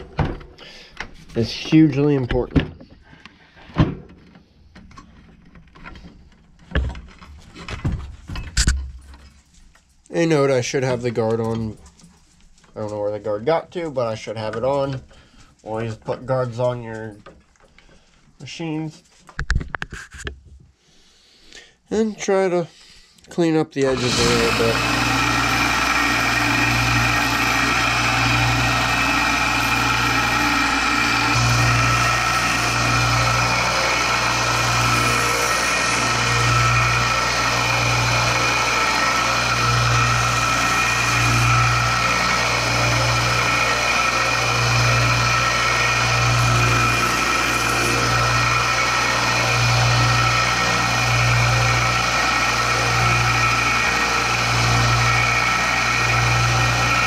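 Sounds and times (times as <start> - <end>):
belt sander sanding wood: 23.8 - 57.0.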